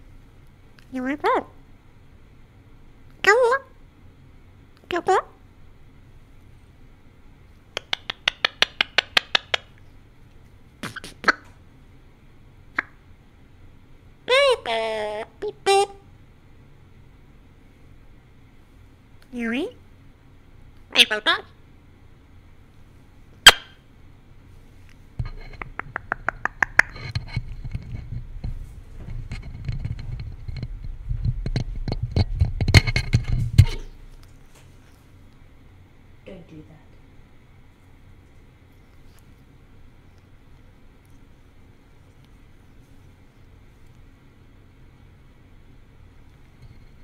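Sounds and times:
parrot clicking: 0:07.7 - 0:09.8, 0:25.6 - 0:27.2.

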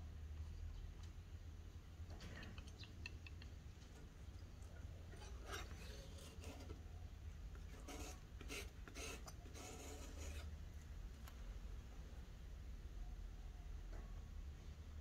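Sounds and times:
palette knife scraping paint: 0:05.1 - 0:06.8, 0:07.7 - 0:10.6.

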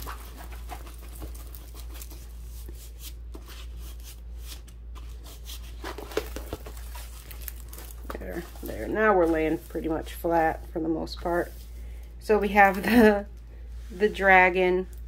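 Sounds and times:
plastic sheet crinkling: 0:00.0 - 0:04.4, 0:05.1 - 0:11.6
low steady hum: 0:00.0 - 0:15.0.

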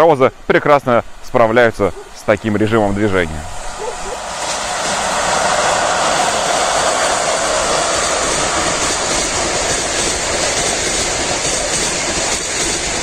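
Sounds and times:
electric locomotive passing: 0:00.6 - 0:13.0
train carriages rolling by: 0:00.6 - 0:13.0.

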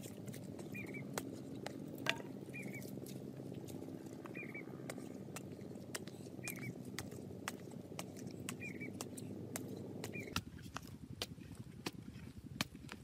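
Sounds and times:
wooden stick scraping dry earth: 0:00.0 - 0:13.0
bird chirping: 0:00.6 - 0:01.2, 0:02.2 - 0:02.9, 0:04.2 - 0:07.2, 0:08.4 - 0:10.4.

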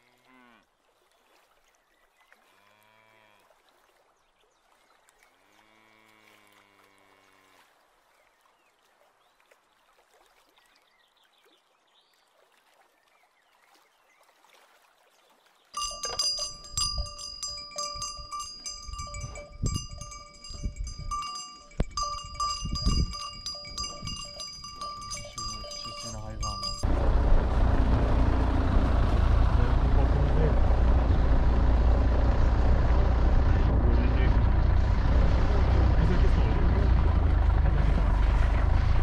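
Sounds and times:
low moo-like call: 0:00.0 - 0:00.7, 0:02.4 - 0:03.6, 0:05.4 - 0:07.7
cow bell ringing: 0:15.8 - 0:27.0
wind rumbling on microphone: 0:16.3 - 0:29.2.

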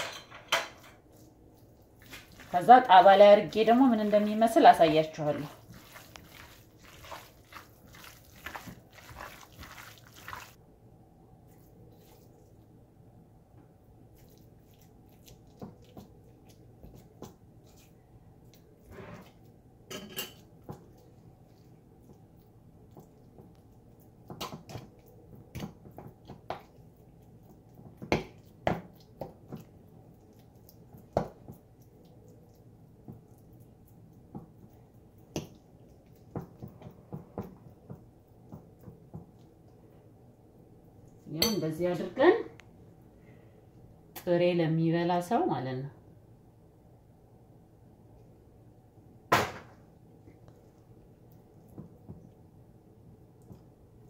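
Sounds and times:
hands squelching minced meat: 0:01.1 - 0:10.6, 0:14.1 - 0:19.5, 0:20.6 - 0:39.8
raw meat squishing: 0:05.2 - 0:10.6, 0:14.1 - 0:19.4.

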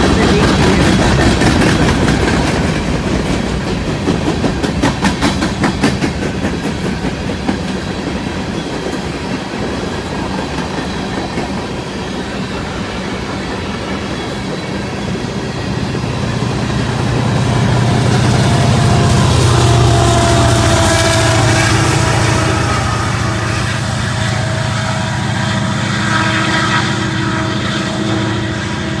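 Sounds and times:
freight cars knocking: 0:00.0 - 0:11.7
train wheels clicking over rail joints: 0:00.0 - 0:22.8
diesel locomotive running: 0:00.0 - 0:29.0.

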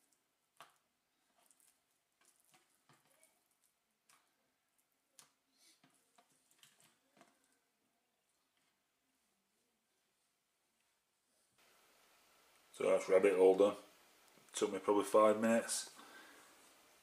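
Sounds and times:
raw meat squishing on wooden board: 0:00.0 - 0:07.5.

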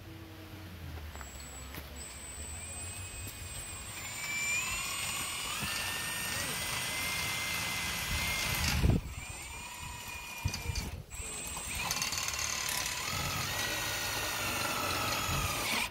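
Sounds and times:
motor whining: 0:01.1 - 0:15.9
wind buffeting microphone: 0:08.0 - 0:11.2.

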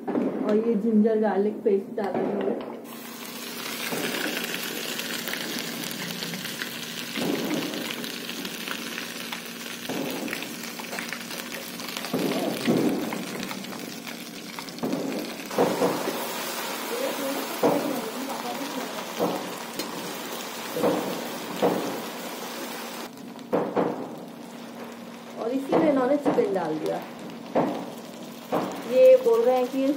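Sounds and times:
paste sizzling in hot oil: 0:02.9 - 0:23.2, 0:27.2 - 0:29.9.

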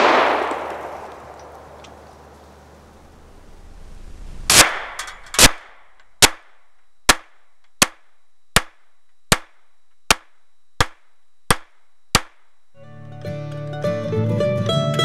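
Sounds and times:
pistol shots: 0:00.0 - 0:01.8, 0:04.5 - 0:12.5.

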